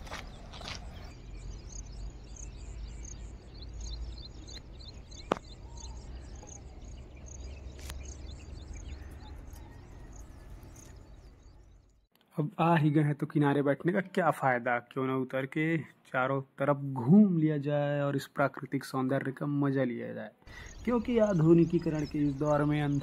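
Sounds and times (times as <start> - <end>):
footsteps on dry sand: 0.0 - 1.2
small birds chirping: 0.0 - 12.1, 20.5 - 23.0.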